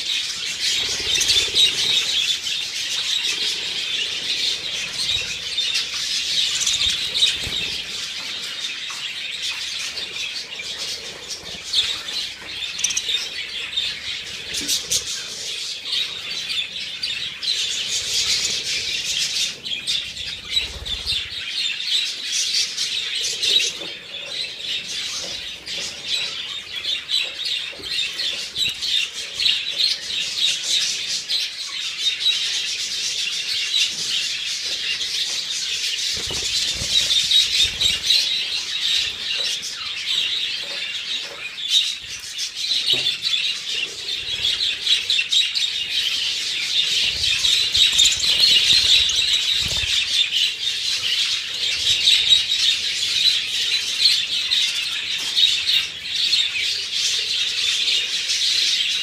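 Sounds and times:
budgerigars chattering: 0.0 - 59.0
wings flapping: 36.0 - 38.3, 47.0 - 50.2.

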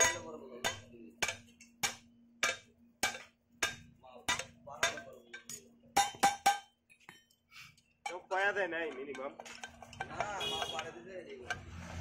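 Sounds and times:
hammer striking hot metal on anvil: 0.0 - 6.7.

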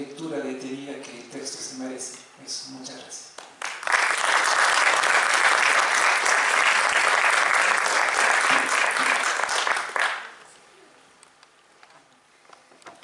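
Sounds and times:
audience applauding: 3.6 - 10.4.

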